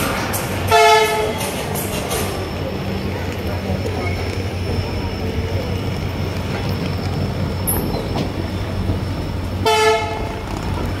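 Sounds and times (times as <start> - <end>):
train rumbling on rails: 0.0 - 11.0
train horn blast: 0.7 - 1.4, 9.6 - 10.4.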